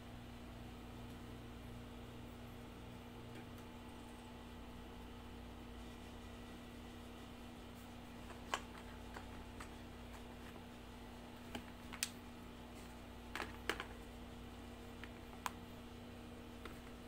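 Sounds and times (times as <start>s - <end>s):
air conditioner humming: 0.0s - 17.0s
light clicks of cable and packaging: 11.4s - 12.2s, 12.8s - 14.0s, 15.0s - 15.6s.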